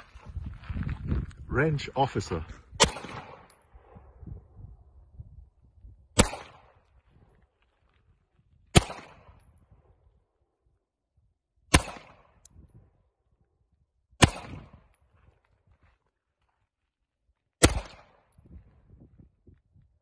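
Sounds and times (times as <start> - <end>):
pistol shots with echo: 2.8 - 4.0, 6.2 - 6.8, 8.7 - 9.4, 11.7 - 12.4, 14.2 - 14.8, 17.6 - 18.3.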